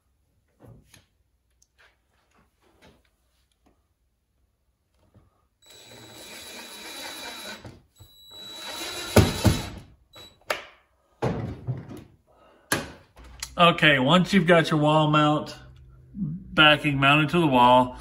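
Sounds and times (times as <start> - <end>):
power drill driving screws: 5.6 - 10.3.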